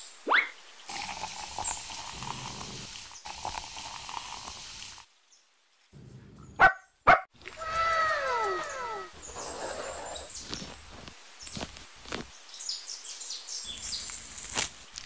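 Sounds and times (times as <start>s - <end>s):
soda fizzing poured over ice: 0.9s - 5.1s
dog barking: 6.6s - 7.3s
dog whining: 7.6s - 9.9s.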